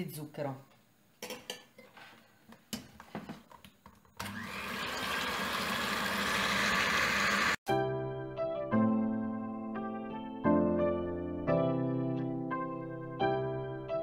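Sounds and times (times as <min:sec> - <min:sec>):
electric hand mixer whirring: 0:04.2 - 0:07.6.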